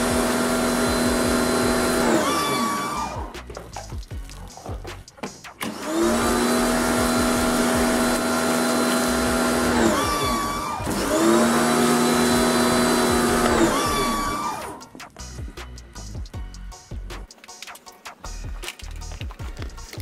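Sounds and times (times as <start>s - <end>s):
pressure washer running: 0.0s - 4.0s, 5.6s - 16.1s.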